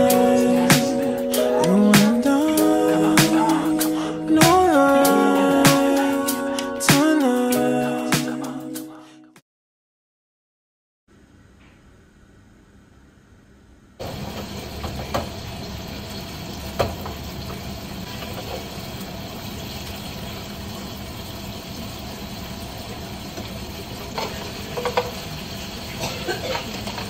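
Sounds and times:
food sizzling in a frying pan: 14.0 - 27.0.

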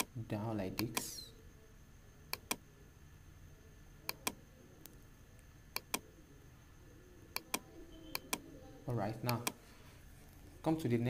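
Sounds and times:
faint steady hum: 0.0 - 11.0
computer mouse clicking: 0.8 - 1.1, 2.3 - 2.6, 4.1 - 5.0, 5.7 - 6.1, 7.3 - 8.4, 9.2 - 9.6.

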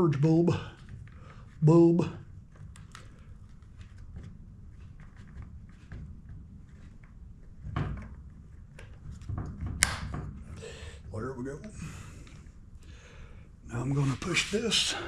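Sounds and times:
small plastic clicks and rubbing: 2.5 - 6.0.

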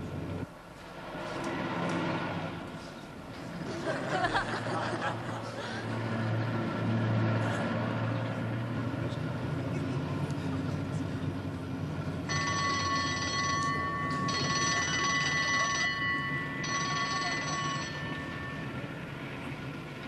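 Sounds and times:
car engine rumble: 0.0 - 20.0
alarm bell ringing: 12.3 - 19.9.

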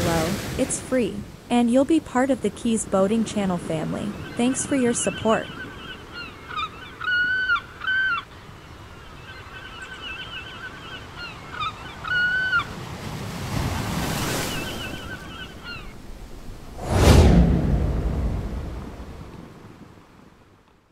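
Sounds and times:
steady rushing wash: 0.0 - 1.5, 15.9 - 19.7
birds calling: 2.2 - 13.0, 14.1 - 16.0.

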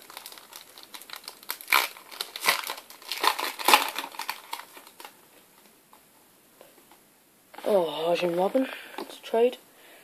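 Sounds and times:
plastic wrapper crinkling: 0.0 - 5.2.

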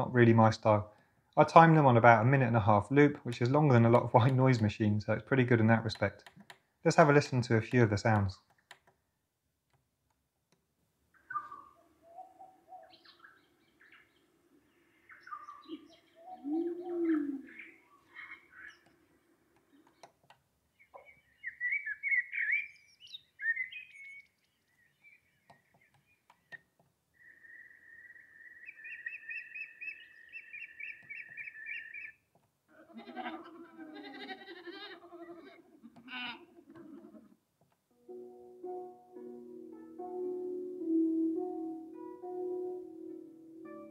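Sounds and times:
recorded birdsong from small speaker: 11.1 - 32.4.

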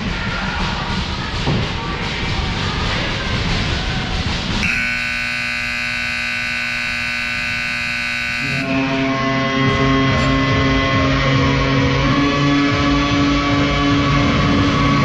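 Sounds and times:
music from arena speakers: 0.0 - 15.0
buzzer horn blast: 4.6 - 9.5.

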